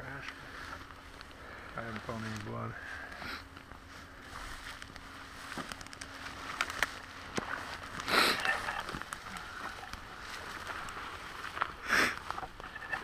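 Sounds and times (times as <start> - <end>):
footsteps through dry grass: 0.1 - 13.0
grass stems snapping: 4.6 - 13.0.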